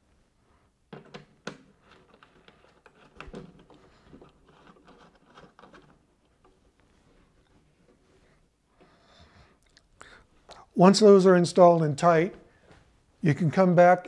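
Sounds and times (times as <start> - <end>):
connector scratching and rattling: 1.8 - 7.6.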